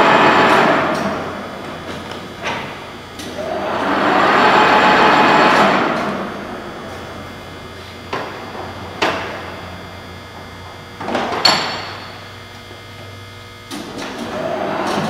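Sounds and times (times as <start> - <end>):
electric hum of boring mill: 0.0 - 15.0.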